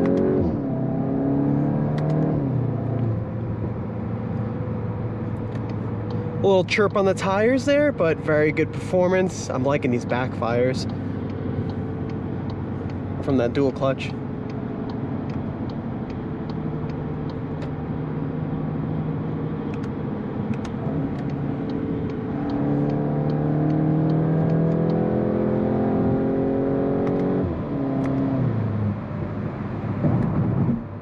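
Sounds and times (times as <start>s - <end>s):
car engine accelerating: 0.0s - 31.0s.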